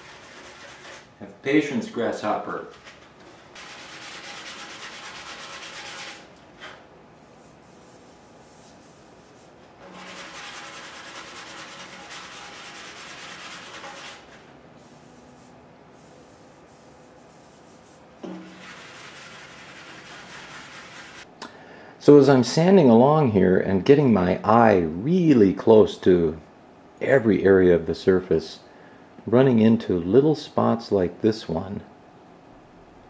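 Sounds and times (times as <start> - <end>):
sandpaper rubbing on metal: 0.0 - 1.1, 3.5 - 6.3, 7.2 - 21.3.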